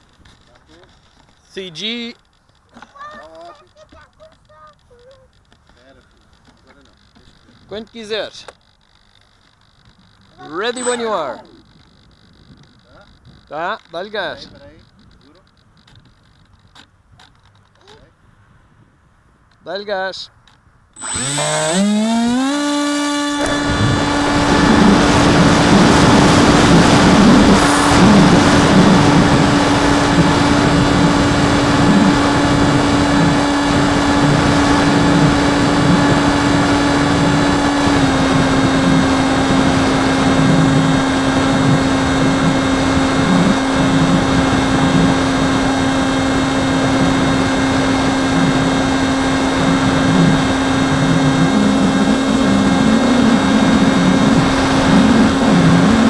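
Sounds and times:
model airplane motor whine: 21.0 - 56.0
wind buffeting: 22.4 - 56.0.

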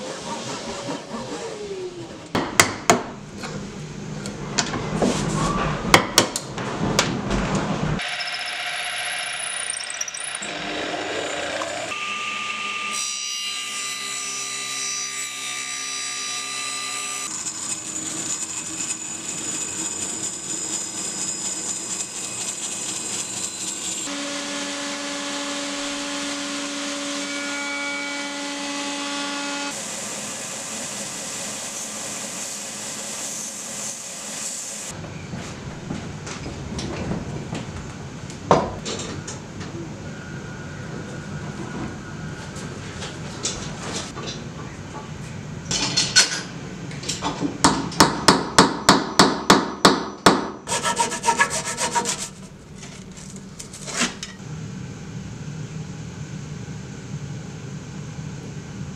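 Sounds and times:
band saw whining: 8.0 - 29.8, 50.7 - 52.6.

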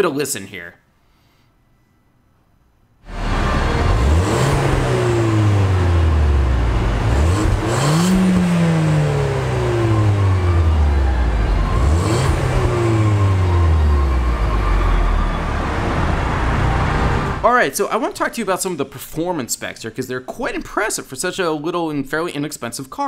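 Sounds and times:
car engine revving: 3.1 - 17.4.

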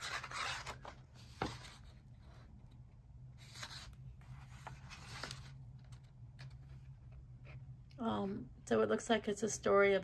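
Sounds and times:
paper pages turning: 0.0 - 2.0, 3.4 - 6.8.

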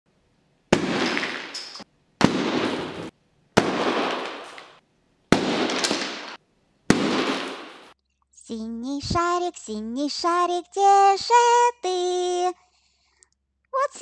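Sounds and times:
balloons popping: 0.7 - 8.0.

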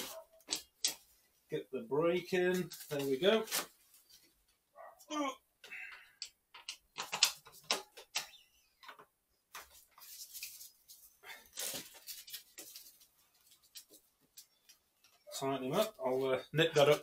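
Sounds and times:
rustling: 0.0 - 1.4, 2.4 - 4.7, 8.9 - 17.0
bicycle parts clicking: 6.2 - 9.0.

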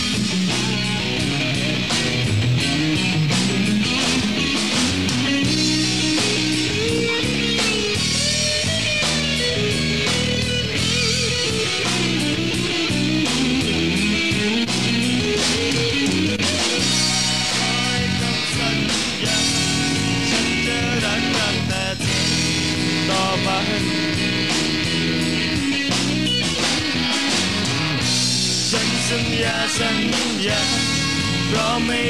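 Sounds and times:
electric guitar lead line: 0.0 - 32.0
live rock band: 0.0 - 32.0.

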